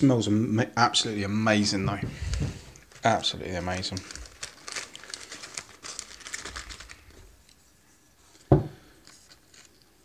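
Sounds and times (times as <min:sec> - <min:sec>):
plastic packaging crinkling: 0:02.2 - 0:07.7, 0:08.3 - 0:10.0.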